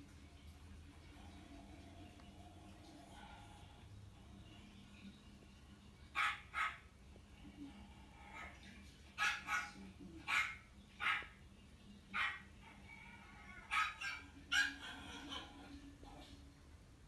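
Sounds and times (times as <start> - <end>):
small dog barking: 6.2 - 6.8, 9.2 - 11.4, 12.1 - 12.8, 13.6 - 15.2.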